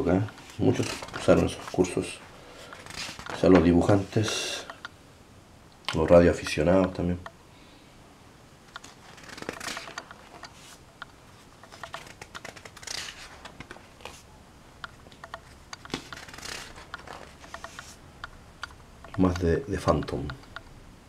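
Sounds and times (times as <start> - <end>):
magazine pages turning: 0.2 - 4.4, 8.8 - 10.8, 11.4 - 14.3, 15.0 - 18.0
paper crackling clicks: 0.6 - 1.8, 2.7 - 3.6, 8.7 - 10.6, 11.7 - 14.2, 15.0 - 17.9.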